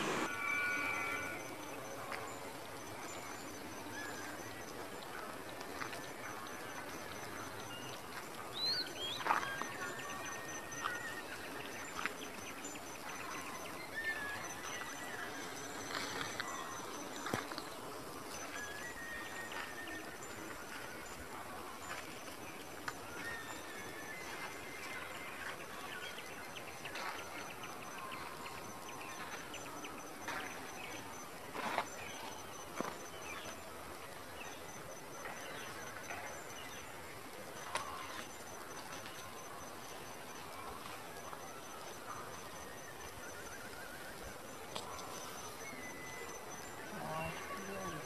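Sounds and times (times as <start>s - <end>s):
high insect buzz: 0.0s - 1.8s
steady hiss: 0.0s - 10.2s
faint high pulsing: 0.0s - 21.5s, 22.2s - 48.0s.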